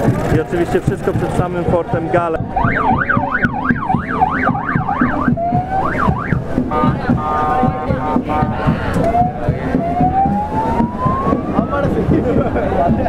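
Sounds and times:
electronic siren yelping: 2.4s - 6.5s, 9.0s - 11.9s
steady multi-tone horn note: 6.6s - 9.5s.

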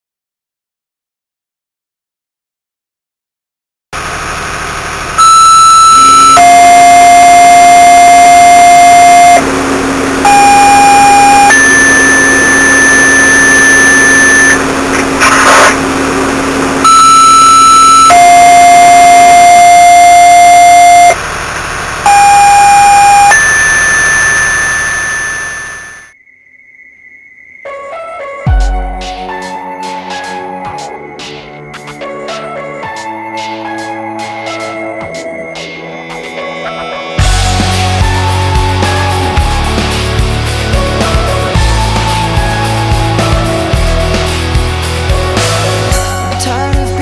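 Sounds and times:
two-tone paging tones over radio: 5.2s - 9.4s, 10.3s - 14.6s, 15.2s - 15.8s, 16.9s - 21.2s, 22.1s - 26.1s
radio static burst: 10.3s - 26.1s.

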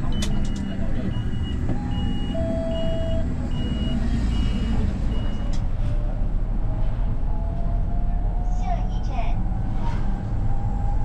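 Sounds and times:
bus warning beeper: 0.0s - 5.6s
bus engine running: 0.0s - 11.0s
road rumble: 0.0s - 11.0s.

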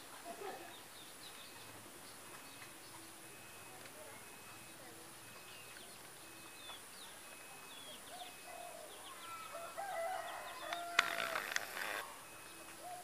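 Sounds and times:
small birds chirping: 0.0s - 13.0s
rooster crowing: 8.4s - 12.0s.

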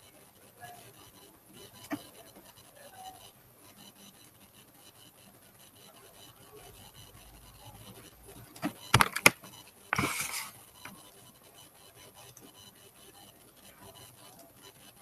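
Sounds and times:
sharp clicks: 8.6s - 9.4s.

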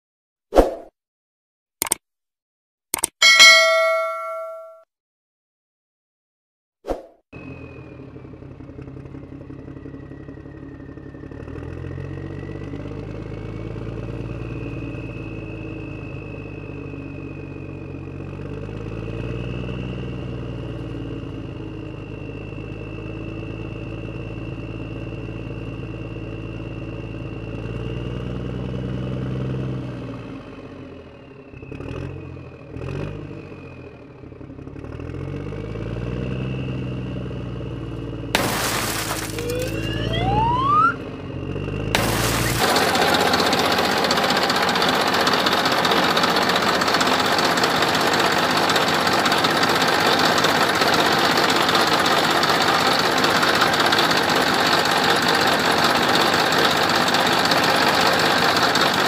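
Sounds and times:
sharp clicks: 1.8s - 2.0s, 2.9s - 3.2s
truck engine revving: 34.7s - 59.0s.

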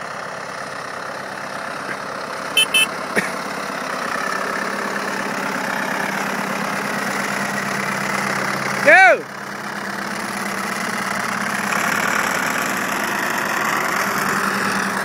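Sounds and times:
tractor diesel engine running: 0.0s - 15.0s
short high beeps: 2.6s - 2.9s.

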